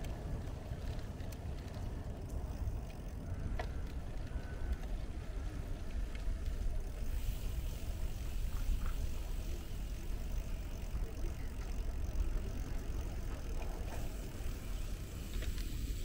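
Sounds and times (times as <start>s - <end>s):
tyres rolling on pavement: 0.0s - 16.0s.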